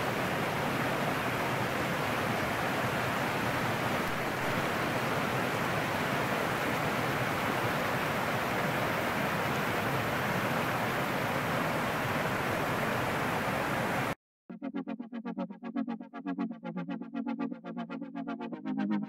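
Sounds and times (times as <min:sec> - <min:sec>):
stream rushing over rocks: 0:00.0 - 0:14.2.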